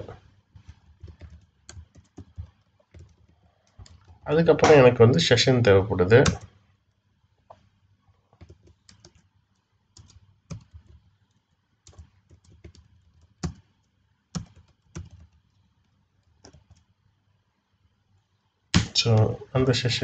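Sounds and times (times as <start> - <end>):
typing on keyboard: 0.6 - 4.2, 6.2 - 6.5, 8.4 - 16.9.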